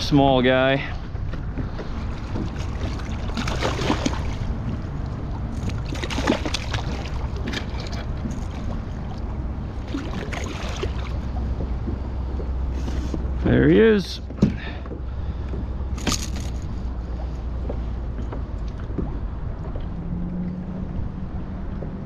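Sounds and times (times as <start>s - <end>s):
wind rumble on microphone: 0.0s - 22.0s
water splashing against kayak: 0.9s - 13.4s.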